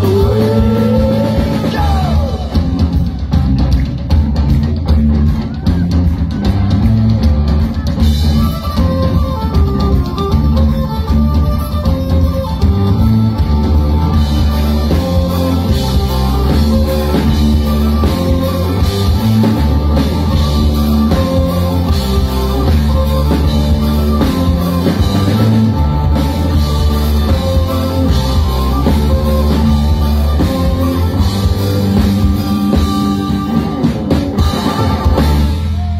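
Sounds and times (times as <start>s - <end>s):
driving drum kit: 0.0s - 35.9s
electric bass: 0.0s - 35.9s
guitars: 0.0s - 35.9s
fiddle: 7.7s - 35.6s.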